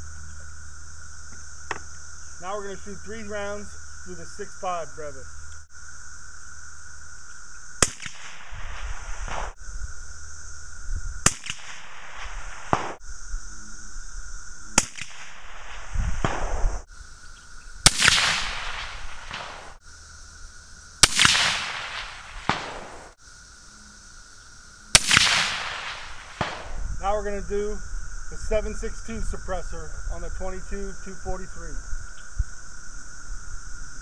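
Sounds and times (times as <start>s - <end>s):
suppressed rifle shots: 7.8s - 8.6s, 11.2s - 13.0s, 16.2s - 16.8s, 17.8s - 19.8s, 21.0s - 23.2s, 24.9s - 26.9s.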